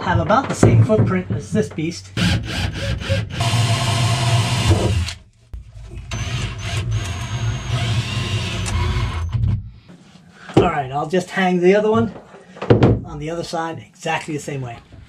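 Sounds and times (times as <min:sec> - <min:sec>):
cordless drill driving screws: 0:02.2 - 0:05.2, 0:06.1 - 0:09.3.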